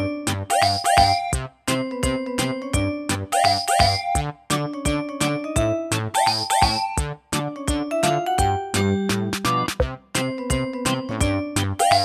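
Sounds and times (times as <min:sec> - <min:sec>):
bouncy background music: 0:00.0 - 0:12.0.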